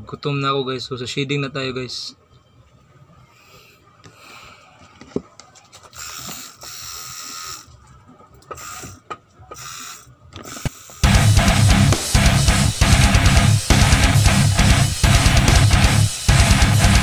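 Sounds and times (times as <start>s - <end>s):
tattoo machine buzzing: 6.0s - 7.7s, 9.6s - 17.0s.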